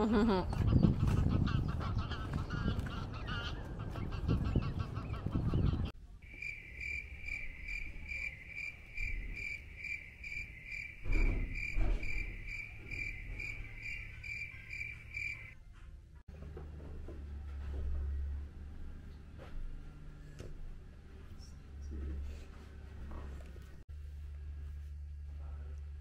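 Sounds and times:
wind: 0.0 - 26.0
geese honking: 1.0 - 5.9, 6.5 - 15.6
high cricket-like chirping: 6.2 - 15.6.

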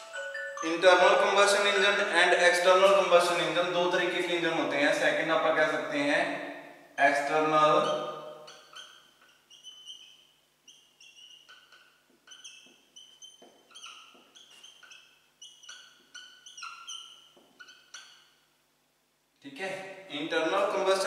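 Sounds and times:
marker squeaking on a whiteboard: 7.2 - 18.5.

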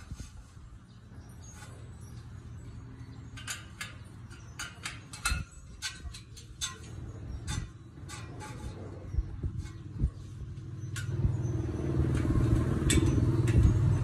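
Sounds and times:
metallic clicks of spoke wrench: 3.3 - 8.7.

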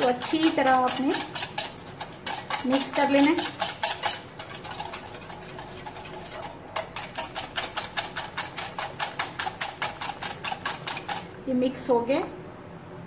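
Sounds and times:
whisk clicking against glass bowl: 0.0 - 11.4.

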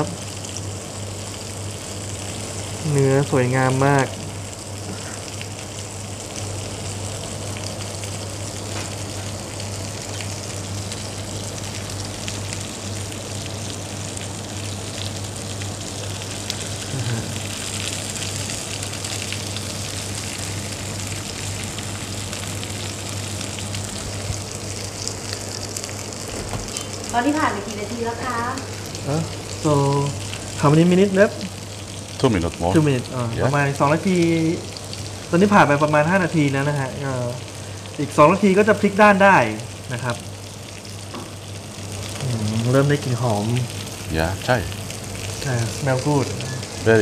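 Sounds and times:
steady low hum: 0.0 - 47.0
steak sizzling in grill pan: 0.0 - 47.0.

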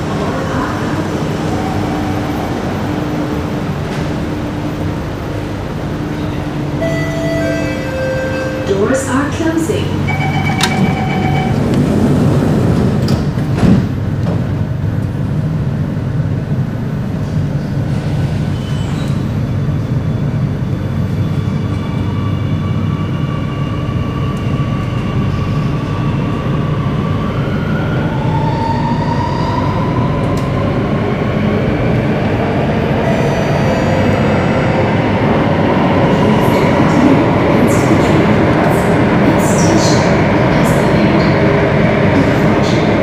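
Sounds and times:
low train rumble: 0.0 - 43.0
train doors knocking shut: 12.7 - 14.5.

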